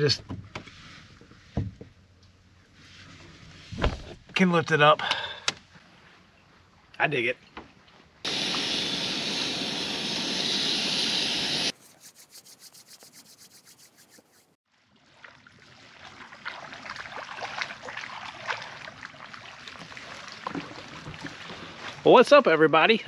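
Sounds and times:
food sizzling in a pan: 0:08.3 - 0:11.8
water lapping at rocky shore: 0:14.7 - 0:22.1.

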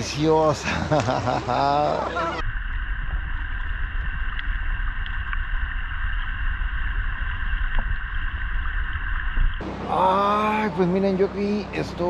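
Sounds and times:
muffled underwater rumble: 0:02.3 - 0:11.4.

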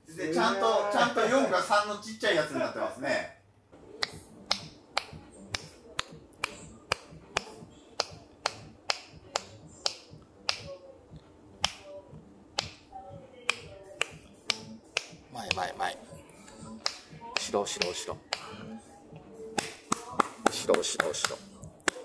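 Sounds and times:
finger snaps: 0:04.0 - 0:10.8, 0:11.6 - 0:11.9, 0:12.6 - 0:15.6, 0:16.4 - 0:18.8, 0:19.5 - 0:22.0.

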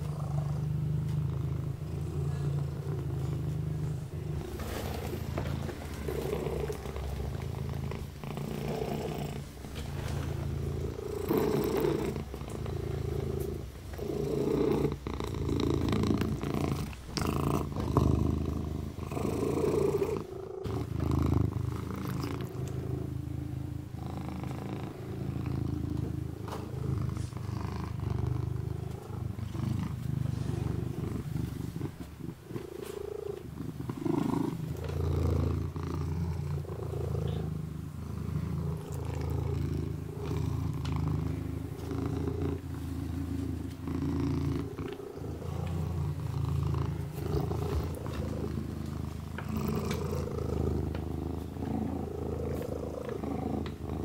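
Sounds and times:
kitten purring: 0:00.0 - 0:54.0.

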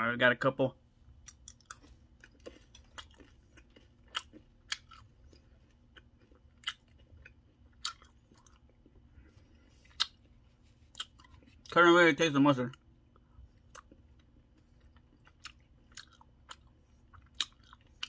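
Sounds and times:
person chewing candy: 0:01.1 - 0:11.8, 0:12.6 - 0:18.0.

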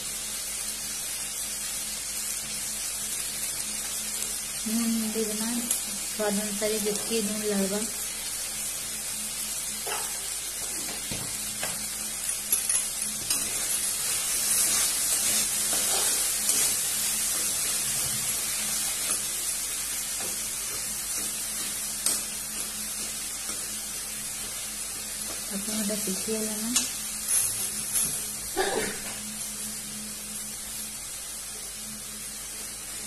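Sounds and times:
vegetables sizzling in oil: 0:00.0 - 0:33.0
spatula scraping wok: 0:13.2 - 0:19.4.

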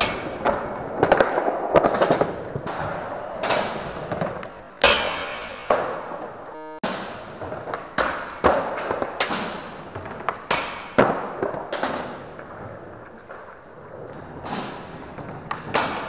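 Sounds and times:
skateboard wheels rolling: 0:00.0 - 0:05.4, 0:09.8 - 0:16.0
skateboard clacks and thuds: 0:00.0 - 0:05.6, 0:08.3 - 0:16.0.

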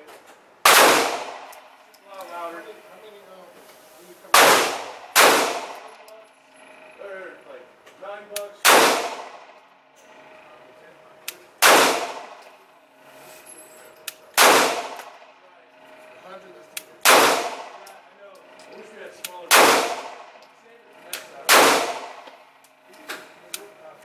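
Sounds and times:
pistol shots ringing indoors: 0:00.6 - 0:01.8, 0:04.3 - 0:06.0, 0:08.6 - 0:09.6, 0:11.6 - 0:12.6, 0:14.3 - 0:15.2, 0:17.0 - 0:17.9, 0:19.5 - 0:20.4, 0:21.2 - 0:22.4.

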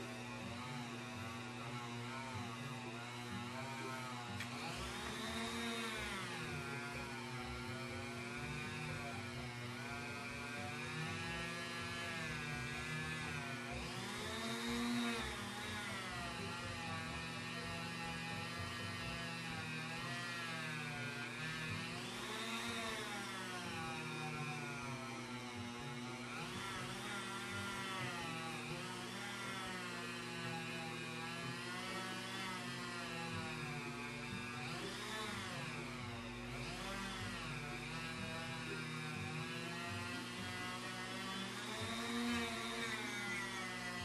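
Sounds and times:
rotary tool motor whine: 0:00.0 - 0:44.0.

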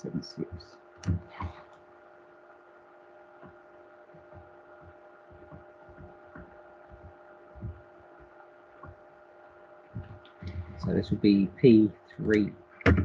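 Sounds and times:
faint electrical hum: 0:00.0 - 0:13.0
stylus tapping on tablet: 0:03.4 - 0:09.0.

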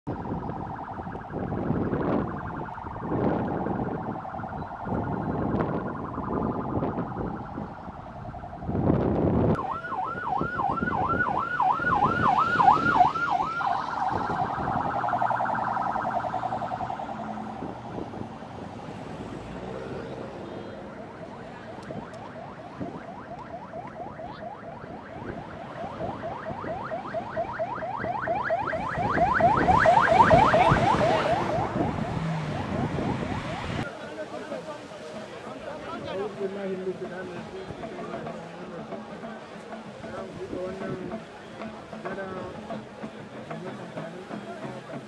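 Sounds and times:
passing vehicles: 0:00.0 - 0:45.0
sirens wailing and yelping: 0:00.1 - 0:34.0.

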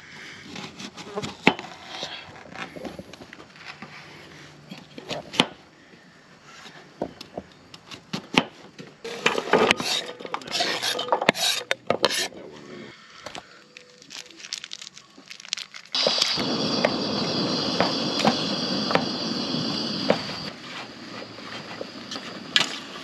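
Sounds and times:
utensils clinking and scraping cookware: 0:09.0 - 0:12.5.

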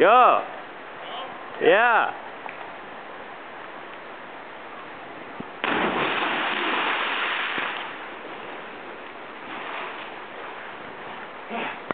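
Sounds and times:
loud splash into water: 0:05.6 - 0:07.9
spray and churned water: 0:05.6 - 0:11.9.

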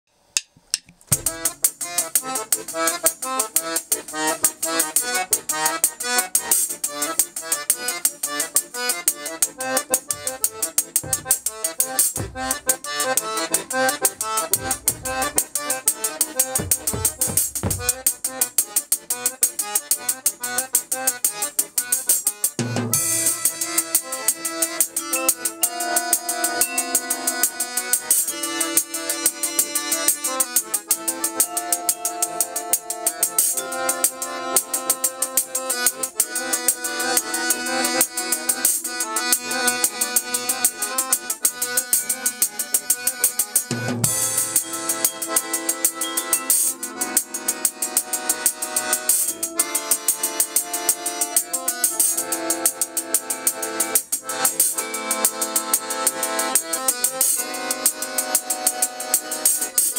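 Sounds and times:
accordion melody: 0:01.1 - 0:59.9
bass drum hits: 0:11.0 - 0:11.6, 0:12.2 - 0:12.7, 0:14.2 - 0:15.5, 0:16.5 - 0:18.0.

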